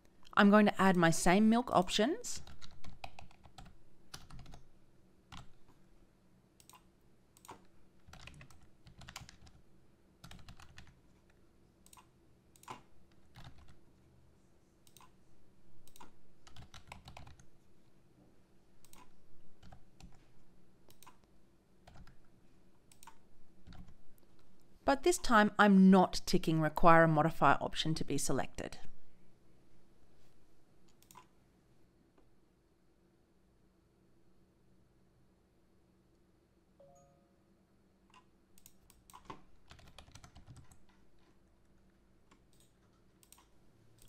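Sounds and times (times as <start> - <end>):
faint keyboard typing: 2.3 - 5.8, 6.6 - 14.1, 14.8 - 15.2, 15.8 - 17.7, 18.8 - 25.4, 30.8 - 31.4, 38.1 - 44.0.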